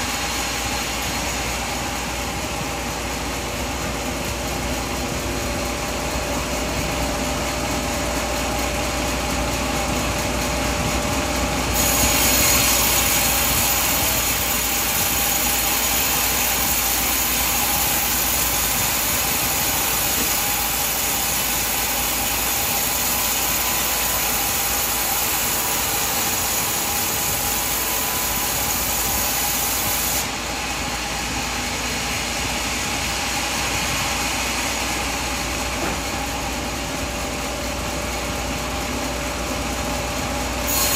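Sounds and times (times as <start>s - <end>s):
sawmill machinery humming: 0.0s - 40.9s
loud high hiss: 11.6s - 37.4s, 40.4s - 40.9s.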